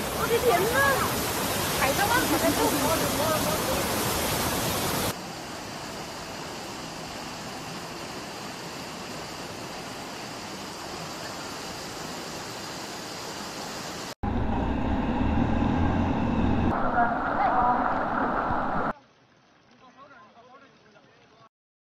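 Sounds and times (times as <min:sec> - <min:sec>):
floodwater rushing: 0:00.0 - 0:21.2
low rumble: 0:14.2 - 0:18.9.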